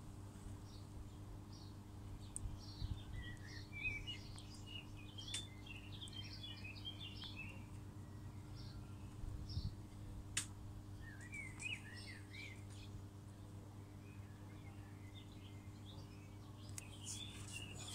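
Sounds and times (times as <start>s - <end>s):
small birds chirping: 0.0s - 17.9s
steady low hum: 0.0s - 17.9s.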